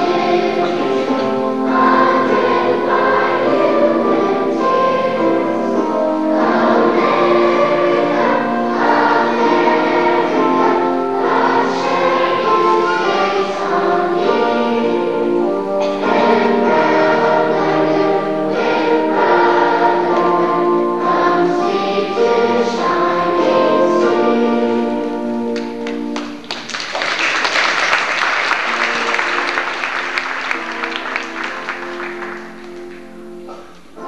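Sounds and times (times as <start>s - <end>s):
children's choir singing: 0.0s - 34.0s
audience applause: 25.8s - 33.2s.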